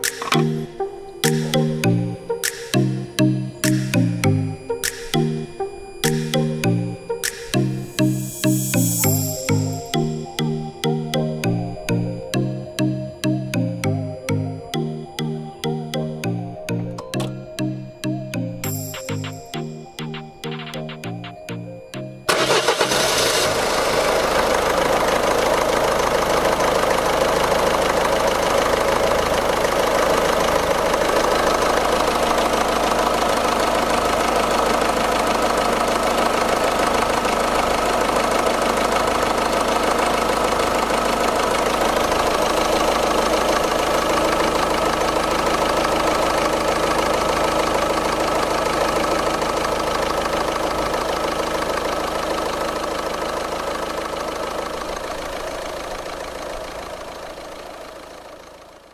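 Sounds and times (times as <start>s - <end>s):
diesel engine idling: 22.0s - 58.9s.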